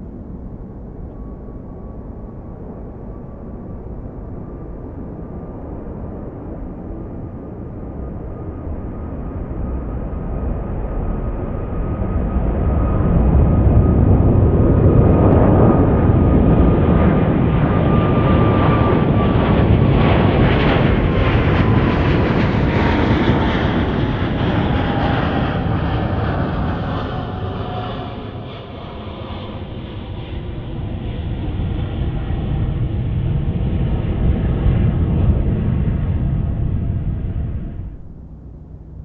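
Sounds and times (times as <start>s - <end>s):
jet engine roar: 0.0s - 39.0s
whining engine tone: 7.9s - 39.0s.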